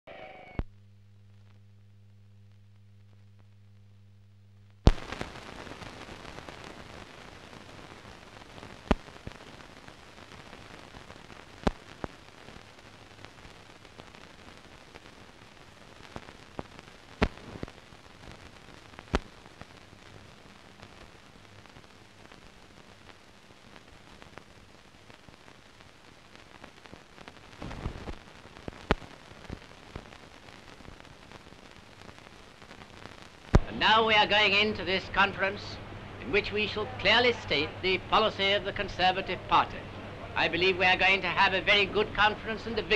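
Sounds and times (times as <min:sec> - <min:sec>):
low steady hum: 0:00.1 - 0:16.5, 0:33.6 - 0:42.9
old film hiss and crackle: 0:00.1 - 0:42.9.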